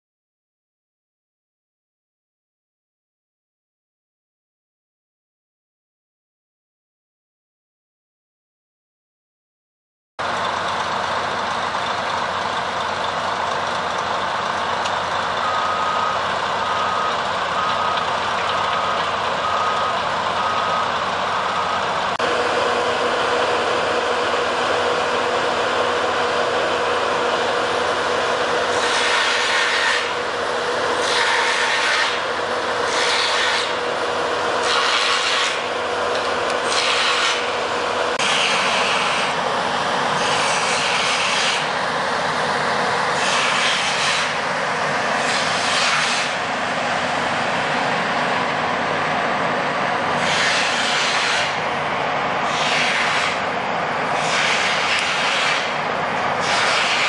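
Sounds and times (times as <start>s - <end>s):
heavy construction equipment running: 10.2s - 57.0s
backup alarm beeping: 15.4s - 22.0s
loud hissing rasping bursts: 28.6s - 34.0s, 34.6s - 35.7s, 36.6s - 37.5s, 38.2s - 39.4s, 40.2s - 41.8s, 43.1s - 44.5s, 45.2s - 46.4s, 50.2s - 51.7s, 52.4s - 55.8s, 56.4s - 57.0s.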